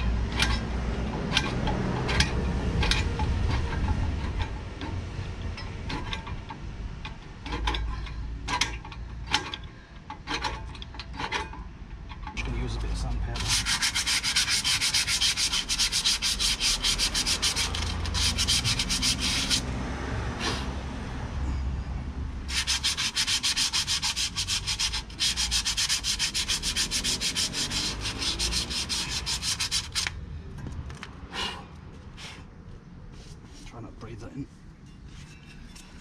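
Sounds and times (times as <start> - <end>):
sandpaper rubbing on steel: 13.4 - 19.6, 22.5 - 30.2.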